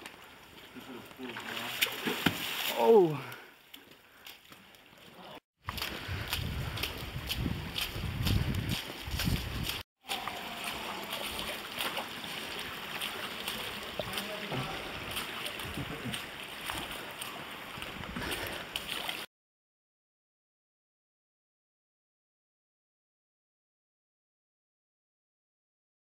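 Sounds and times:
creek running over rock: 0:00.0 - 0:19.3
wind on microphone: 0:05.8 - 0:09.8.

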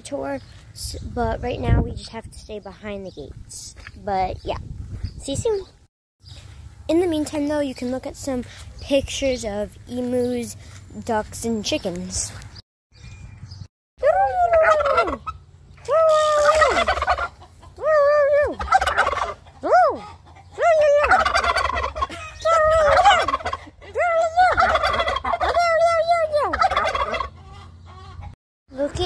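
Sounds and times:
turkeys gobbling: 0:14.1 - 0:15.5, 0:16.1 - 0:28.4.

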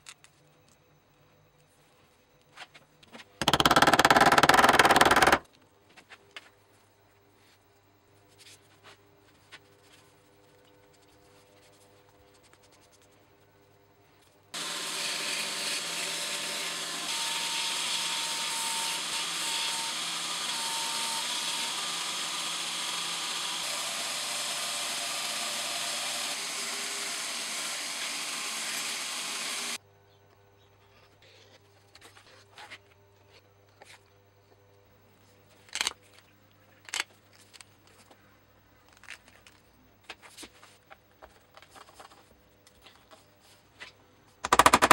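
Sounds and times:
belt sander grinding leather: 0:14.6 - 0:29.8.

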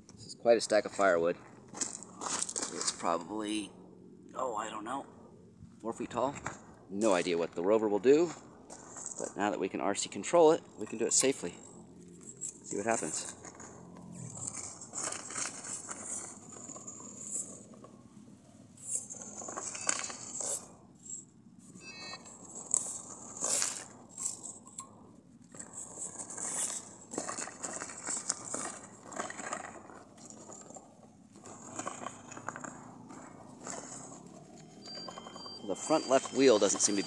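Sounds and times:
wheels scraping and crunching: 0:00.0 - 0:37.0
electric motors whining: 0:18.8 - 0:24.7, 0:31.4 - 0:37.0.

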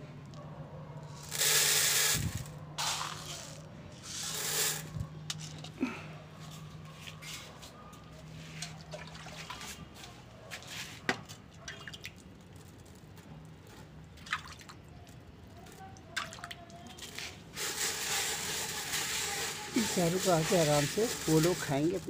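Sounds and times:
water dripping onto grain in metal pan: 0:13.7 - 0:22.0.

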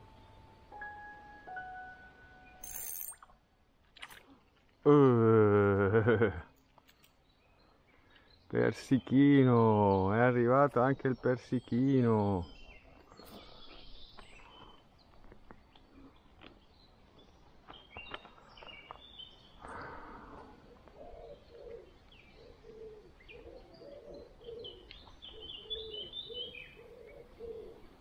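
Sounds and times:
small birds chirping: 0:04.0 - 0:28.0
pigeon cooing: 0:20.6 - 0:28.0.

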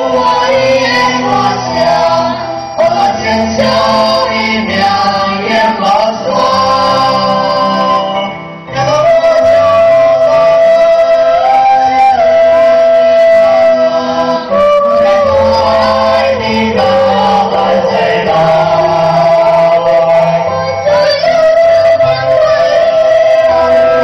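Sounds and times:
group singing into microphones: 0:00.0 - 0:24.0.

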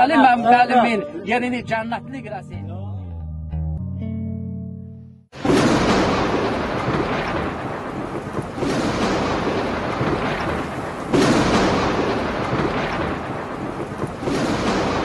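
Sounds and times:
rumbling thunder: 0:05.4 - 0:15.0
steady rain: 0:05.4 - 0:15.0.

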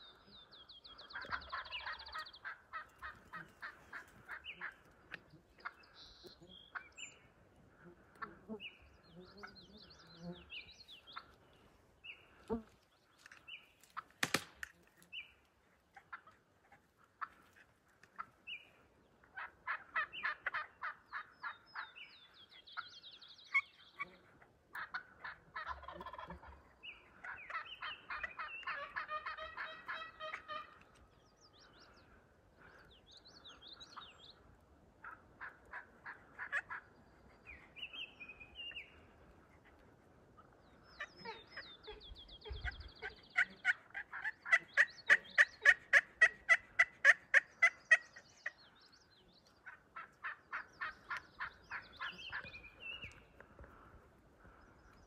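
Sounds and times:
songbirds chirping: 0:00.0 - 0:55.0
turkey gobbling: 0:01.0 - 0:05.8, 0:19.3 - 0:21.9, 0:24.8 - 0:26.6, 0:27.2 - 0:30.8, 0:35.0 - 0:36.9, 0:42.4 - 0:48.6, 0:49.6 - 0:52.6.

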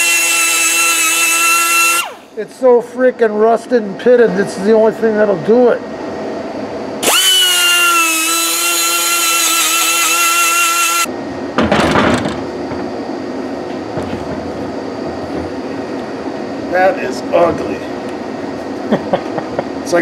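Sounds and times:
grinder whining on metal: 0:00.0 - 0:02.3, 0:07.0 - 0:11.1.

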